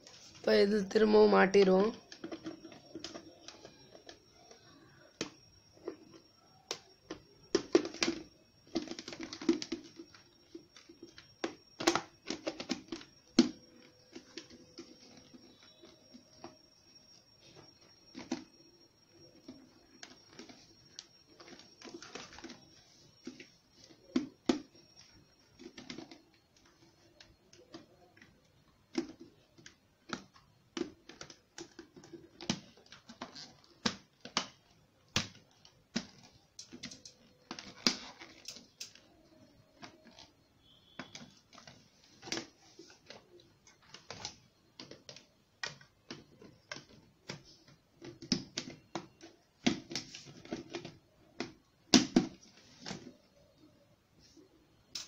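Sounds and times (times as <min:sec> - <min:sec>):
plastic vacuum parts clicking: 0:28.9 - 0:53.1.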